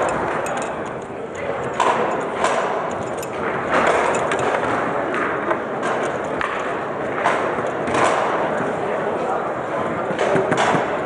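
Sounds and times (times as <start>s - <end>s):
murmur of voices: 7.8s - 11.0s.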